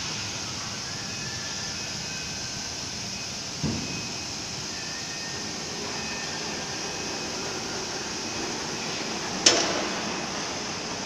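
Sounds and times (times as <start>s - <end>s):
cnc router hiss and hum: 0.0s - 11.0s.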